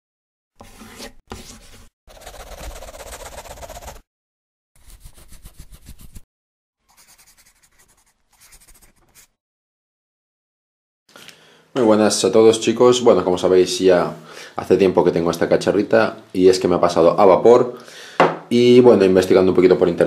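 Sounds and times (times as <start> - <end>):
pen scribbling on paper: 1.4 - 4.0, 4.8 - 6.2, 6.9 - 9.4.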